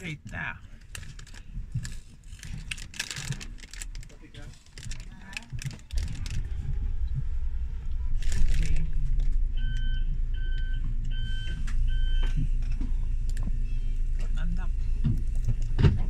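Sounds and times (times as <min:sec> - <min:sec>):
bus engine and road rumble: 0:00.0 - 0:16.0
electronic warning beeps: 0:09.5 - 0:14.0.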